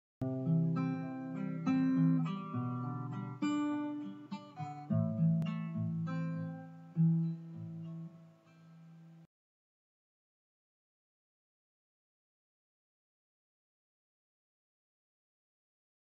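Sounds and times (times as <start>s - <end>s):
acoustic guitar picking: 0.2s - 9.2s.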